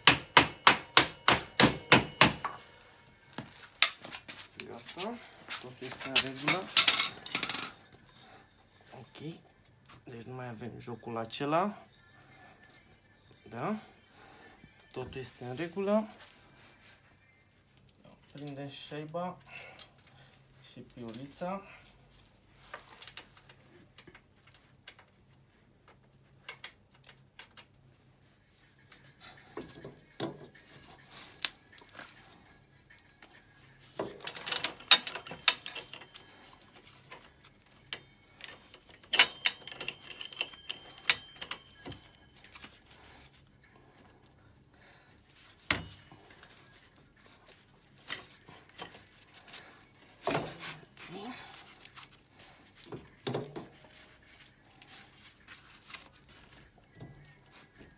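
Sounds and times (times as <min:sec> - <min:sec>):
metal tools clinking: 0:00.0 - 0:04.3, 0:05.2 - 0:07.9, 0:33.9 - 0:42.8, 0:45.6 - 0:51.7.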